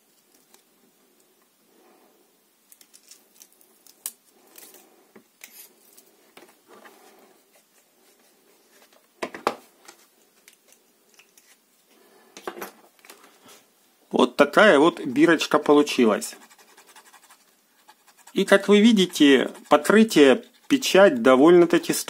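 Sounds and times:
sticker rubbed onto plastic: 0:16.3 - 0:21.0.

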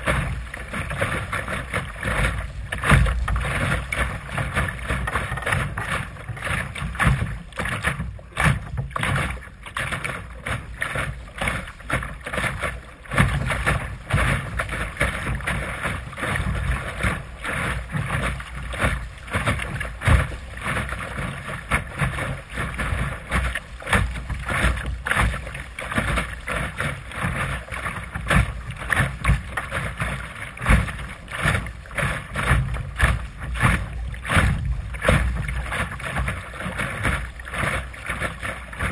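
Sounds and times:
water slapping against hull: 0:00.0 - 0:38.9.

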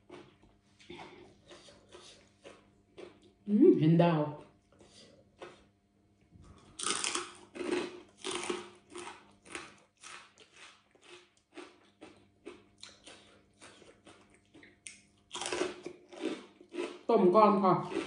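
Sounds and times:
crunchy chewing: 0:00.0 - 0:03.4, 0:04.4 - 0:05.8, 0:06.4 - 0:17.1, 0:17.8 - 0:18.0.

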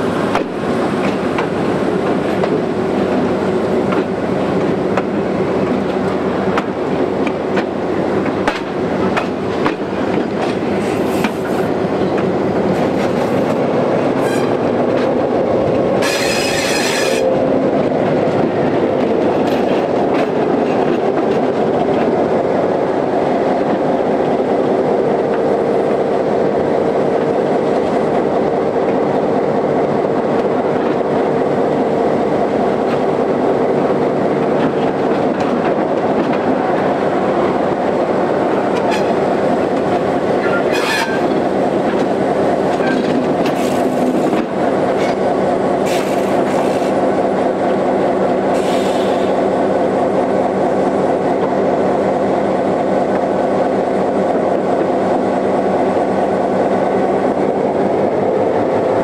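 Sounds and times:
train wheels clacking over rail joints: 0:00.2 - 0:22.3, 0:38.4 - 0:47.0.

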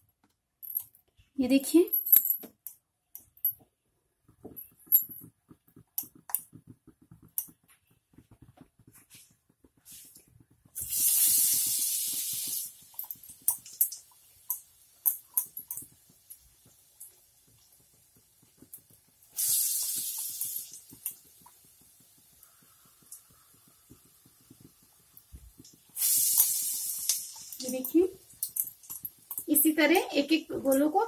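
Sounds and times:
oil popping and crackling: 0:04.2 - 0:31.0
wet clicks of fingers in batter: 0:05.0 - 0:19.3, 0:19.9 - 0:29.5
loud sizzle in hot oil: 0:09.8 - 0:31.0.

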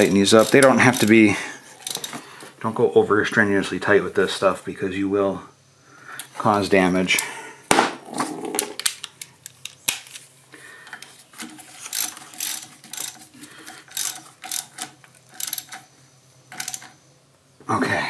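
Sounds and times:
ratchet wrench clicking: 0:00.0 - 0:01.2, 0:01.8 - 0:02.2, 0:11.9 - 0:15.8, 0:16.5 - 0:17.0.

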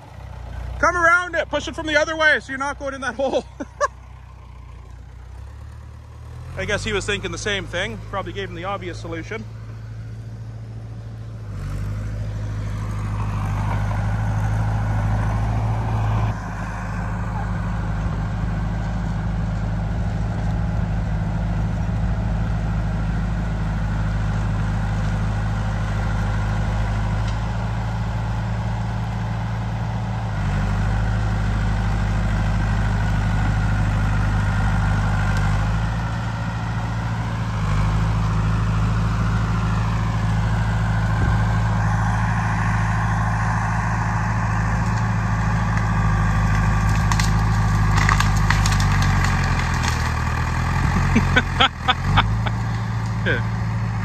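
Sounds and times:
bulldozer engine running: 0:00.0 - 0:54.0
sharp cracks: 0:44.7 - 0:53.2.

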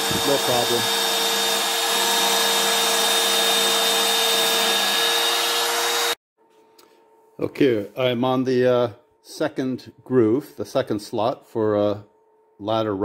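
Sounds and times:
router motor whining while cutting: 0:00.0 - 0:06.2.

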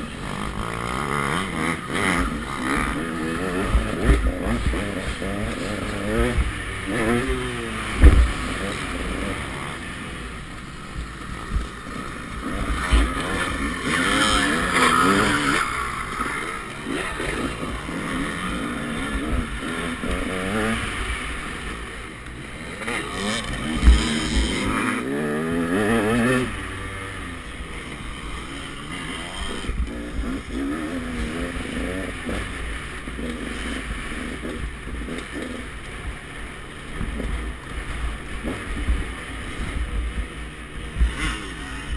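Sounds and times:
dirt bike engine revving: 0:00.0 - 0:41.9
sharp thumps: 0:07.9 - 0:08.4.

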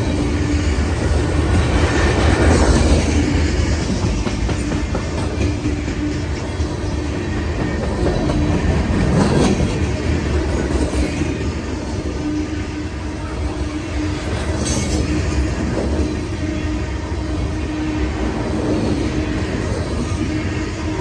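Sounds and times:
freight train wheels clattering: 0:00.0 - 0:12.1.

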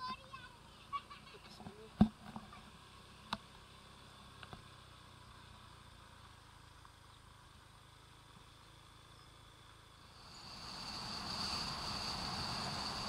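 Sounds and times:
faint ticks: 0:06.7 - 0:07.3.

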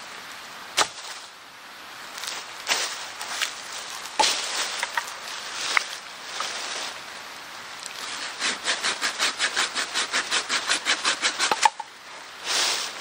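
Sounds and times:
branch cracking off: 0:02.2 - 0:06.6
pruning saw cutting branch: 0:07.9 - 0:11.9.

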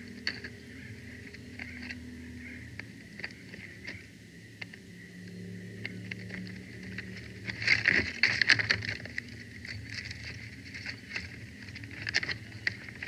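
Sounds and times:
sticks crackling and snapping: 0:05.8 - 0:13.0.

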